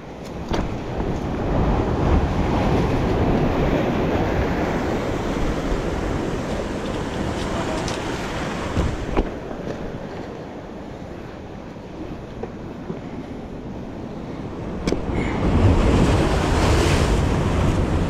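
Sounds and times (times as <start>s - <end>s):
wind buffeting microphone: 0.0s - 18.0s
waves breaking on rocks: 0.4s - 10.1s, 14.5s - 18.0s.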